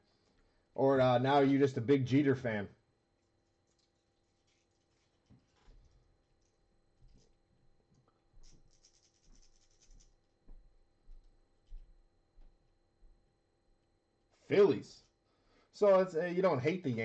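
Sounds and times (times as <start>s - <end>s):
scratchy rustle: 3.6s - 7.4s, 8.4s - 10.2s.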